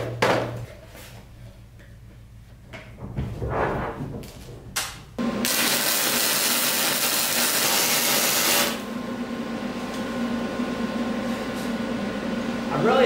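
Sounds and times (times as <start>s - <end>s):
steady hum: 0.0s - 13.0s
welding arc sizzling: 5.2s - 8.9s.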